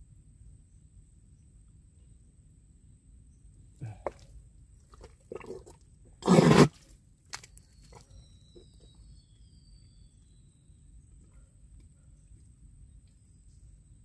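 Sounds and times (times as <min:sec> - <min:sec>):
faint bird chirps: 0:07.4 - 0:14.0.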